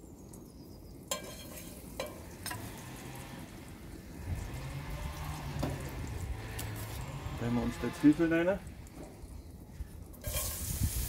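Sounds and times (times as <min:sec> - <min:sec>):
oil sizzling in pan: 0:00.5 - 0:07.2, 0:10.1 - 0:11.0.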